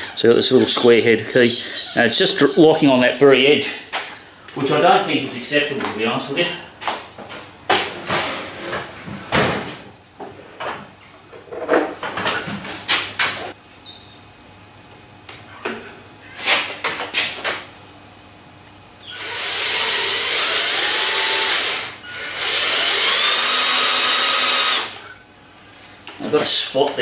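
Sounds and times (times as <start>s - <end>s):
hand drill drilling metal: 19.0s - 25.1s.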